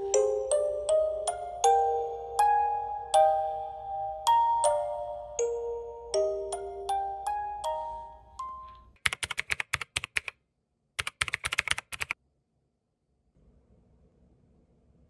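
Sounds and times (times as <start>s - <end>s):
glockenspiel-like chiming notes: 0.0s - 9.0s
faint room tone: 0.0s - 9.1s, 12.0s - 15.0s
keyboard typing clicks: 9.0s - 10.3s, 11.0s - 12.2s.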